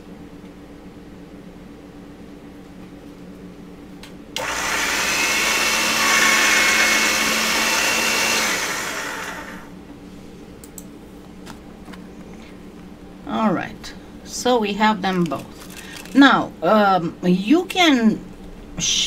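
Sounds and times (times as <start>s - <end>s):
small electric motor whirring: 4.4s - 9.7s.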